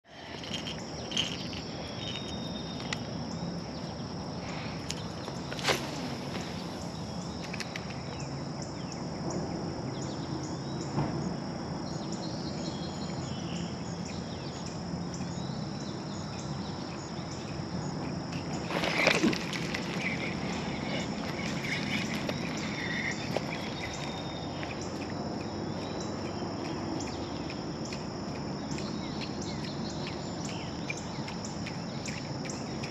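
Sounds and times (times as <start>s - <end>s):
crickets and insects trilling: 0.0s - 32.9s
bird chirps: 0.4s - 3.1s, 11.9s - 28.0s, 28.6s - 32.9s.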